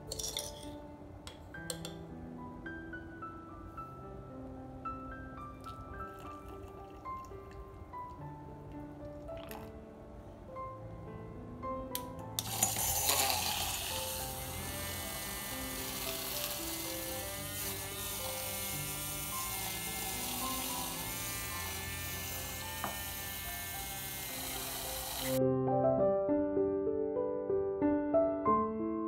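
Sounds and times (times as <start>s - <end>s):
soft background music: 0.0s - 29.0s
milk frother motor buzzing: 12.4s - 25.4s.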